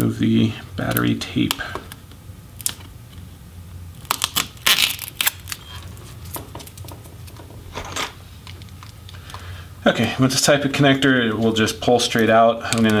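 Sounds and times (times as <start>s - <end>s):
tape ripping: 4.0s - 9.0s.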